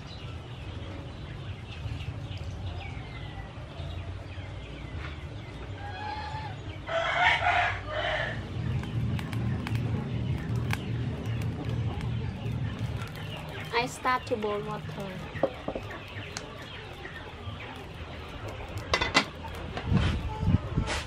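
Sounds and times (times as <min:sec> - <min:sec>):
small birds chirping: 0:00.0 - 0:20.9
rooster crowing: 0:05.8 - 0:08.4.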